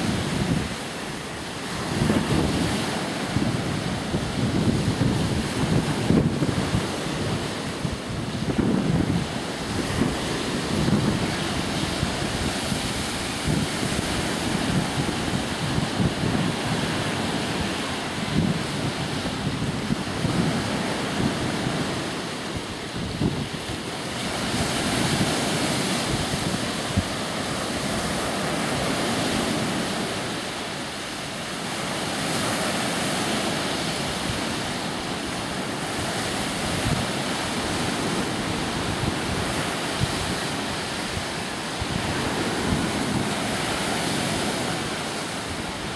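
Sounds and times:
waves washing onto beach: 0.0 - 45.9
wind buffeting microphone: 0.0 - 45.9.

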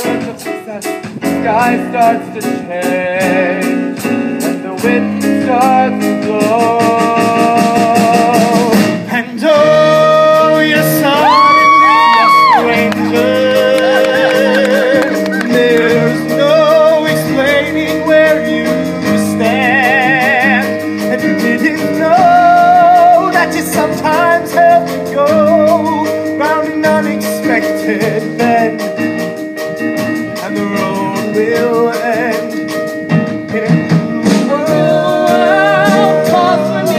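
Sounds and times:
live band with drum kit: 0.0 - 36.9
vocal ensemble singing: 1.4 - 25.9, 33.4 - 36.9.

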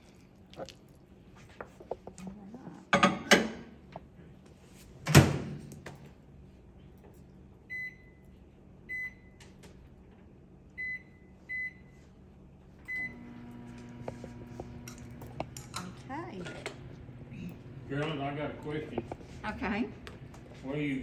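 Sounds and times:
microwave oven humming: 0.0 - 21.0
microwave keypad beeping: 10.8 - 11.8, 12.9 - 13.4.

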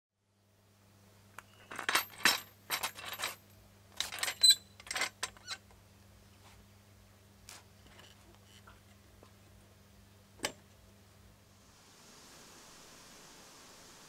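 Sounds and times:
metallic clanks and rattles: 1.5 - 3.4, 4.0 - 5.6.

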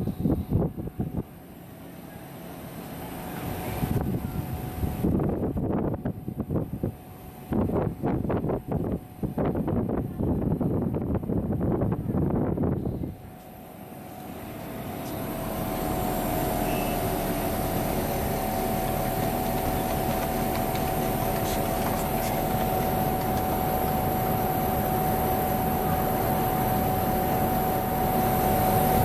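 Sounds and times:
air conditioner fan noise: 0.0 - 29.0
steady mid-pitched tone: 12.8 - 29.0.

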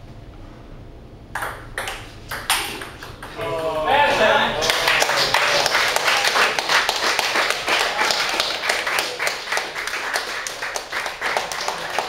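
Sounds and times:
people clapping: 3.0 - 12.0.

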